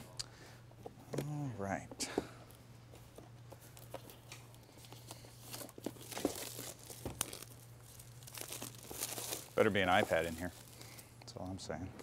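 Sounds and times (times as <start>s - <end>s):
plastic shrink wrap tearing: 4.0s - 11.0s.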